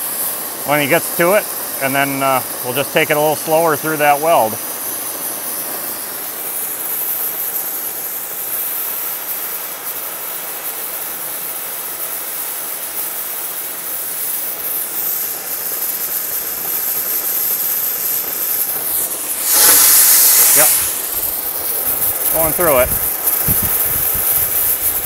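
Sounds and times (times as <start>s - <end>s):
cutting torch hissing: 0.0s - 25.0s.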